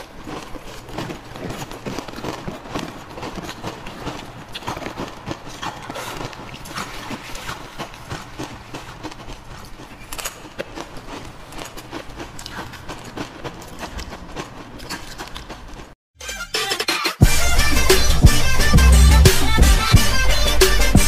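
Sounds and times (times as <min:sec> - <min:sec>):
ice being chewed: 0:00.0 - 0:16.0.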